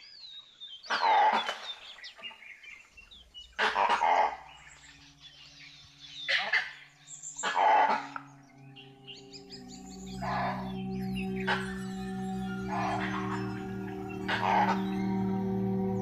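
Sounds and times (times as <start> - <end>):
faint bird chirps: 0.0 - 16.0
animal harsh barking calls: 0.9 - 1.6, 3.6 - 5.0, 6.3 - 16.0
low musical drone: 2.9 - 16.0.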